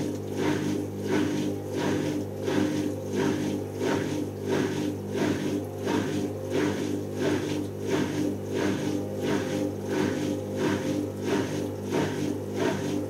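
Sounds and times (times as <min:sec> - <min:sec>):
motor hum with rhythmic whooshing: 0:00.0 - 0:13.0
washing machine drum spinning: 0:00.0 - 0:13.0.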